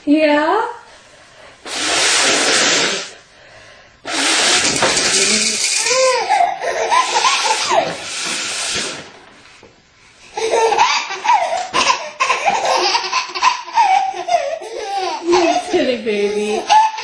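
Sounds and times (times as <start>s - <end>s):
woman blowing her nose: 1.6s - 3.2s, 4.0s - 9.2s
baby laughing: 5.1s - 8.1s, 10.3s - 17.0s.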